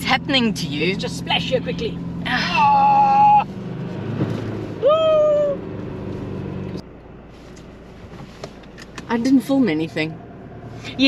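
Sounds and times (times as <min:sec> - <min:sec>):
pickup engine running: 0:00.0 - 0:11.0
person exclaiming: 0:02.3 - 0:03.4, 0:04.8 - 0:05.6.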